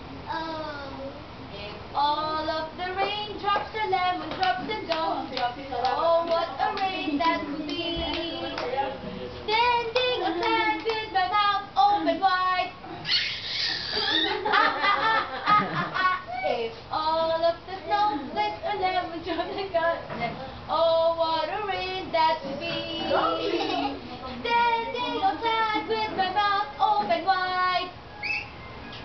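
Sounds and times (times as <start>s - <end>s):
hands clapping: 4.3s - 8.8s, 9.8s - 11.0s.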